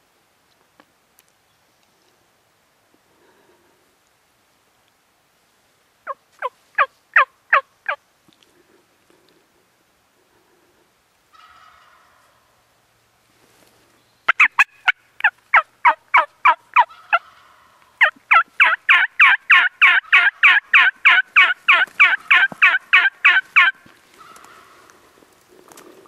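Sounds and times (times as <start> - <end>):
turkey yelping: 14.3 - 24.9.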